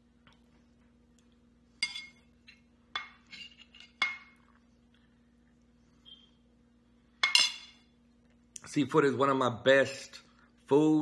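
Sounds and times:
cutlery clinking against plate: 0:01.8 - 0:04.4, 0:07.2 - 0:07.8.

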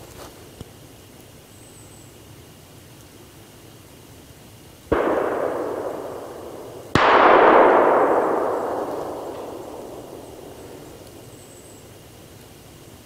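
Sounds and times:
gunshot echoing through woods: 0:04.9 - 0:12.1.

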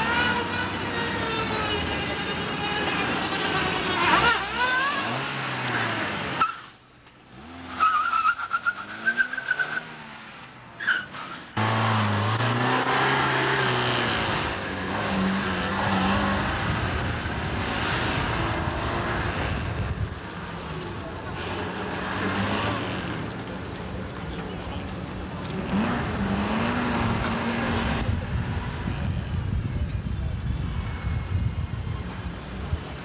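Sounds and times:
car engines revving: 0:00.0 - 0:33.0
tyres squealing: 0:07.7 - 0:10.0, 0:10.8 - 0:11.6.

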